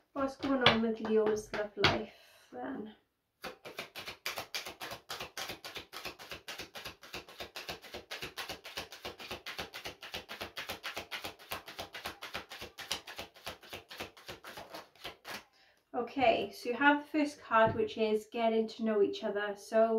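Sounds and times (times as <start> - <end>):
cards being shuffled: 3.4 - 15.4.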